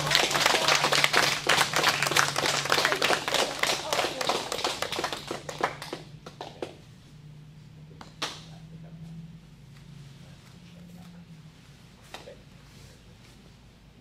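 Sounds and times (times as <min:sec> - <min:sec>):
audience applause: 0:00.0 - 0:06.1
low steady hum: 0:00.0 - 0:14.0.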